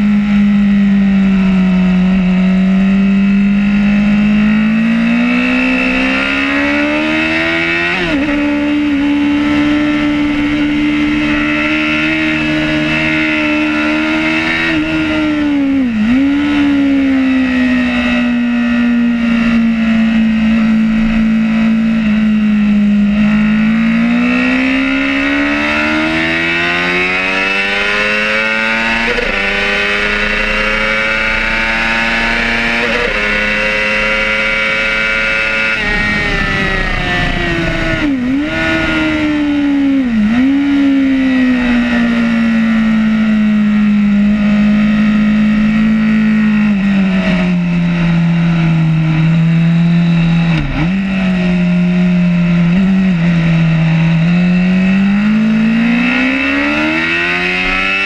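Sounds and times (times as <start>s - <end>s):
motorcycle engine at high revs: 0.0s - 58.0s
wind rush: 35.3s - 40.7s.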